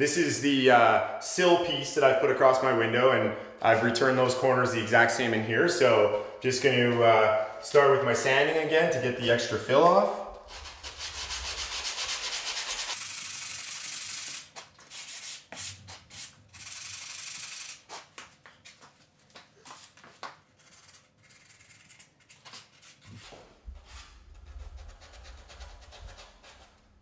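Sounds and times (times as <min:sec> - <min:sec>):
sanding sponge on wood: 0:10.5 - 0:17.5.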